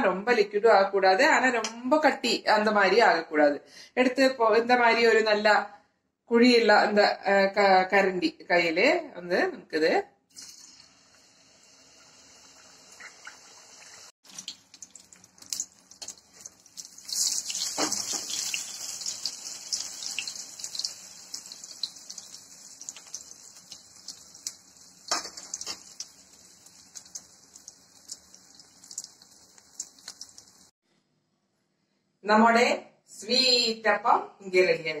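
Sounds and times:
batter sizzling in hot oil: 10.4 - 30.7.

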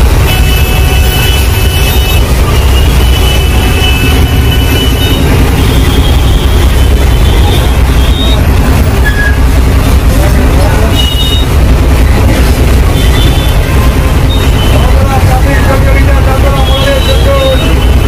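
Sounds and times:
bus engine and road rumble: 0.0 - 18.0.

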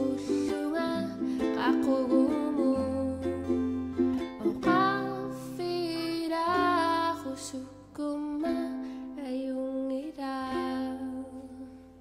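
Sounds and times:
acoustic guitar: 0.0 - 12.0
ukulele: 0.0 - 12.0
woman singing: 0.0 - 12.0.

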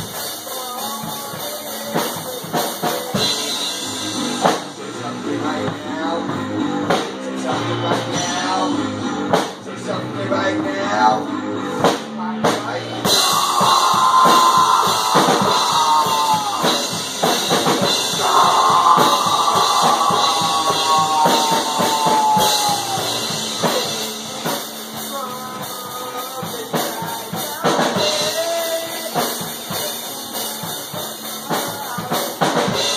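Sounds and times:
drum kit playing: 0.0 - 4.9, 11.8 - 32.9
amplified singing voice: 13.0 - 32.9.

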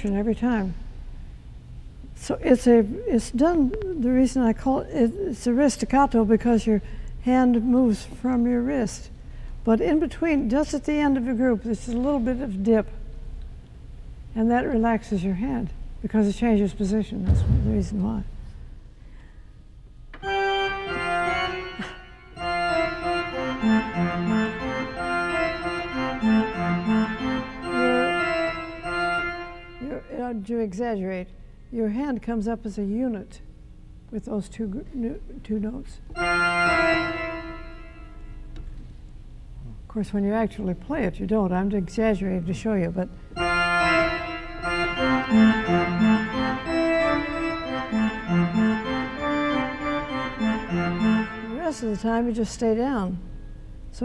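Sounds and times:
pipe organ staccato notes: 17.2 - 18.3, 20.2 - 30.5, 36.1 - 38.6, 43.2 - 52.0.

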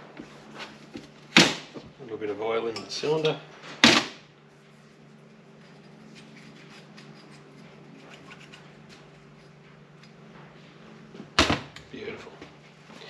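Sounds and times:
steady low hum: 0.0 - 13.0
hand rubbing metal: 5.1 - 9.6.

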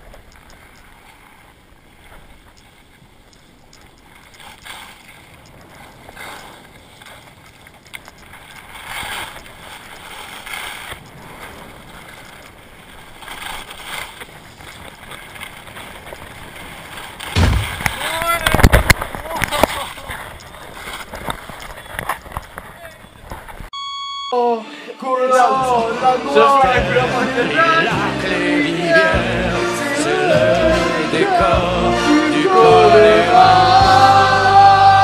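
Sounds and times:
skis scraping over snow: 0.5 - 17.4, 18.0 - 23.7.

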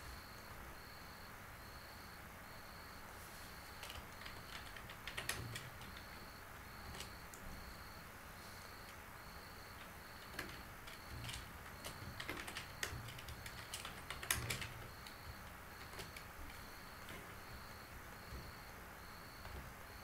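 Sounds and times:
keyboard typing: 3.6 - 8.0, 8.6 - 20.0.

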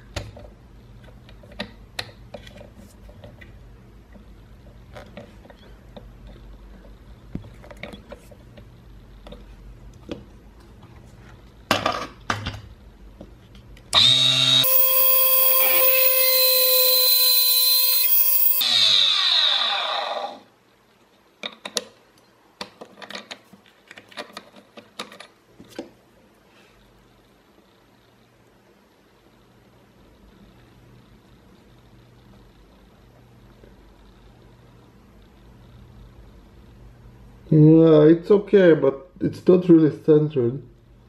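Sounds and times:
drill bit cutting brass: 14.0 - 19.4
lathe motor whining: 14.0 - 20.3.

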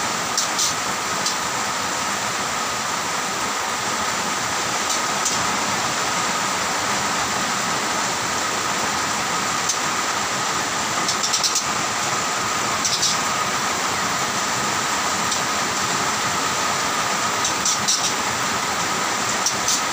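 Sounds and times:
heavy rain hissing: 0.0 - 19.9.

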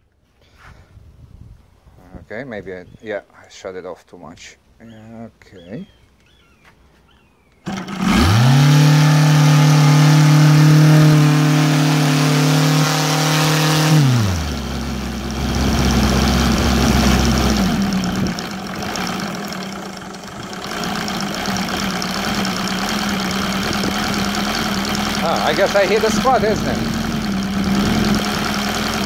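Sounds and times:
radial model engine running: 7.7 - 29.0.

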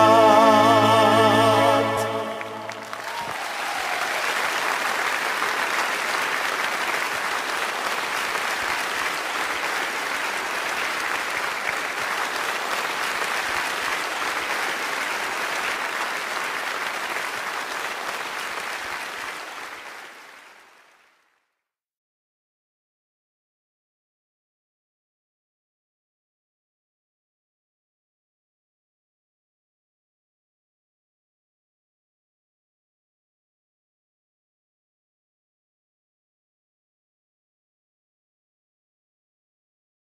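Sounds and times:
arena crowd applauding: 2.4 - 21.6.

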